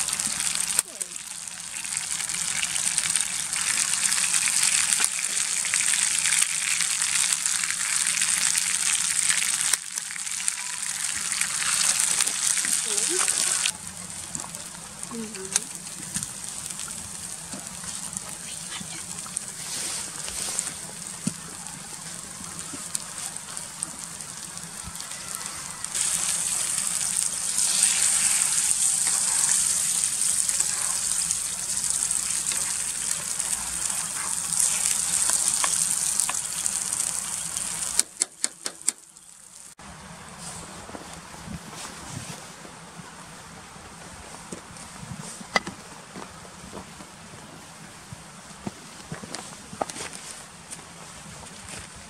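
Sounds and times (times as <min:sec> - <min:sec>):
eggs sizzling in a pan: 0:00.0 - 0:39.8.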